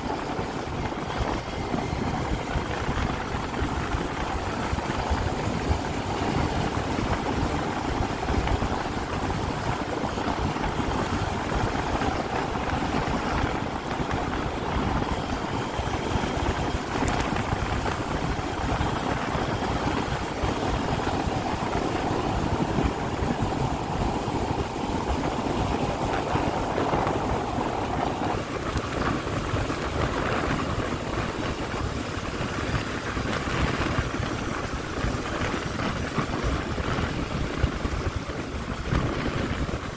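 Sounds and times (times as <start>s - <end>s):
scooter engine running: 0.0s - 39.9s
wind rushing over microphone: 0.0s - 39.9s.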